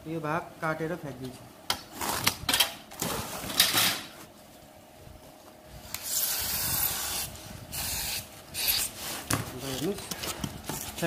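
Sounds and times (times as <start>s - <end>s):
scraping and rustling on foam: 8.3s - 11.0s.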